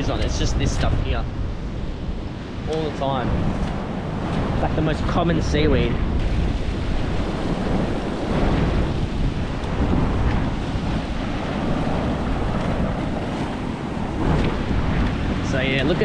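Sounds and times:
wind noise on microphone: 0.0 - 16.0
surf breaking on rocks: 2.4 - 16.0.

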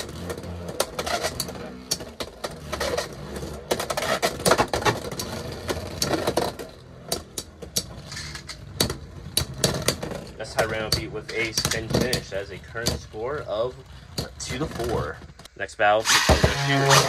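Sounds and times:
spinning tops whirring: 16.0 - 17.0.

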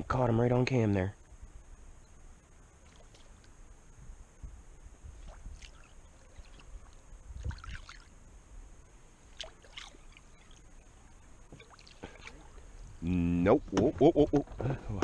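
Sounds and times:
water splashes and drips: 5.2 - 8.1, 9.3 - 10.6, 11.5 - 12.6.

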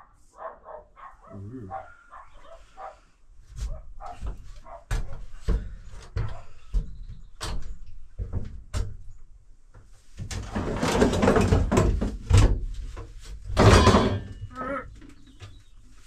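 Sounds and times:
camp bed rustling and clattering: 3.4 - 16.0.

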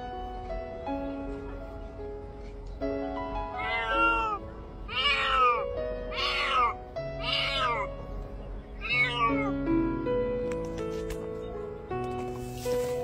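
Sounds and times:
background music: 0.0 - 13.0
cat meowing: 3.5 - 8.0, 8.8 - 9.6.

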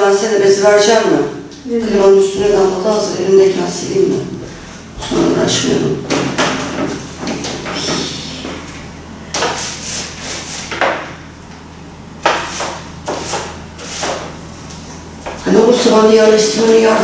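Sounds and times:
knocks and clatters of tools: 6.1 - 8.6.

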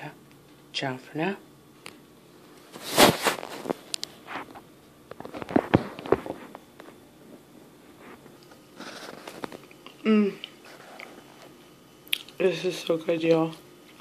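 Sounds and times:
phone rubbing against microphone: 2.8 - 4.6, 7.9 - 9.6.

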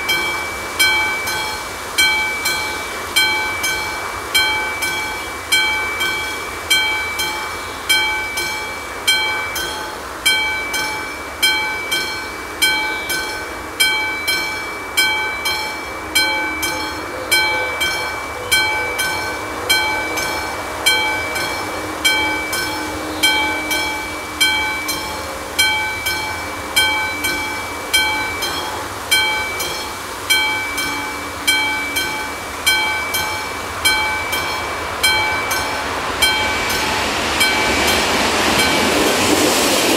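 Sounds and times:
level crossing bell ringing: 0.0 - 39.0.

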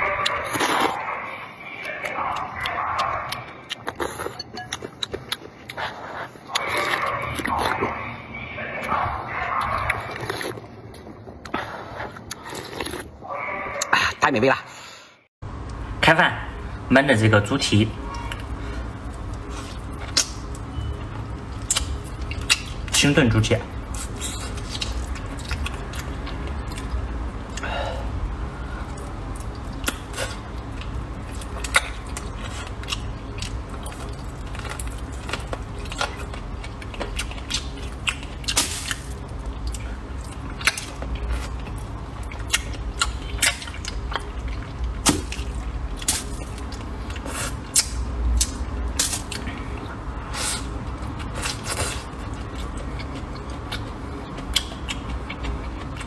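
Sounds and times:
wet chewing: 0.0 - 8.1, 8.8 - 13.9, 18.1 - 27.7, 28.6 - 56.0
low steady hum: 14.8 - 56.0
lip smacks and mouth clicks: 45.0 - 49.5, 52.4 - 56.0.

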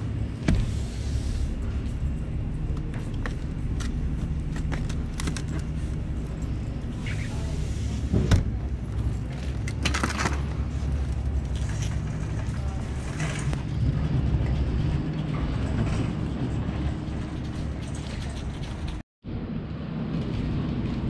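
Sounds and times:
shopping cart rolling rumble: 0.0 - 21.0
cart clatter: 8.5 - 19.0.

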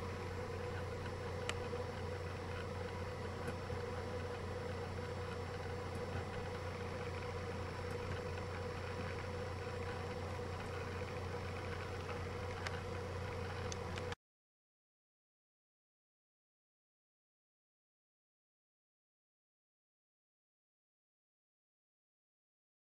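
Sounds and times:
low electrical hum: 0.0 - 14.2.

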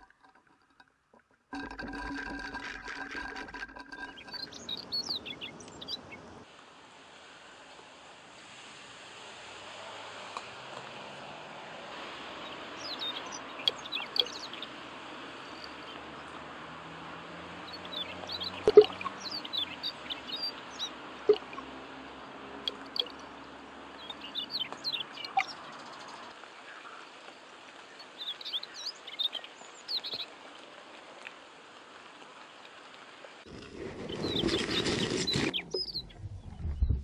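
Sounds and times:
light rain on water: 0.0 - 33.6
small birds chirping: 3.8 - 6.4, 12.4 - 16.4, 17.6 - 30.3, 33.9 - 37.0.

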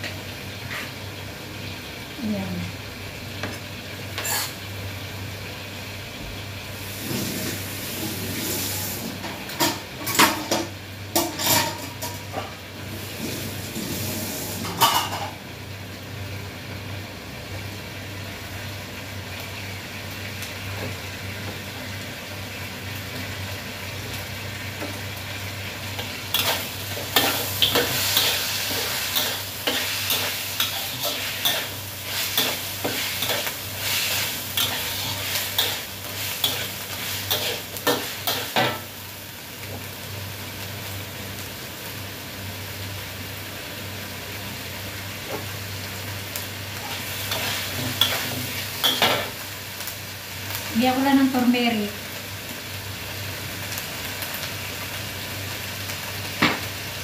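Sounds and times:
food sizzling in a wok: 0.0 - 57.0
spatula scraping and clattering: 26.0 - 38.8, 46.8 - 49.3.

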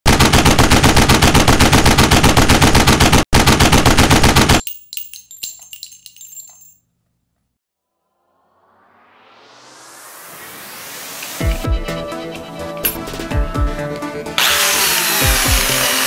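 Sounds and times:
machine-gun fire: 0.0 - 4.6
metallic clinks and rings: 4.6 - 7.0, 12.8 - 13.1.

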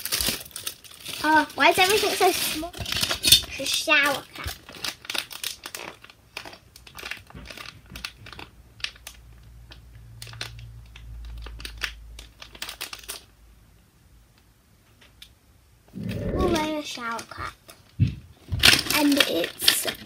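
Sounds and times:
plastic bag crinkling: 0.0 - 13.3, 16.0 - 20.0
low rumble: 15.9 - 16.7.

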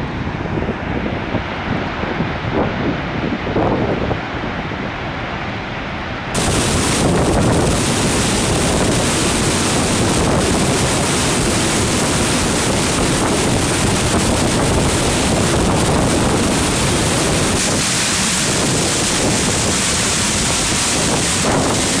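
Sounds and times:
waterfall rushing: 6.3 - 22.0.

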